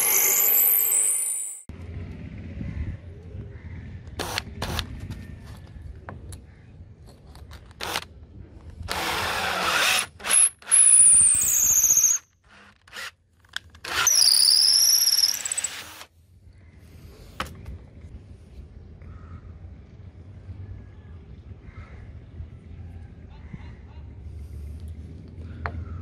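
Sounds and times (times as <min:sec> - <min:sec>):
high squealing whine: 0:00.0 - 0:01.7.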